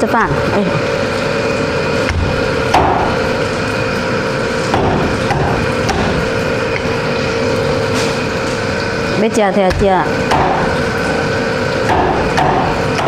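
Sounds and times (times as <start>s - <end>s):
steady background hum: 0.0s - 13.0s
cleaver chopping on wooden board: 4.7s - 6.2s, 11.9s - 13.0s.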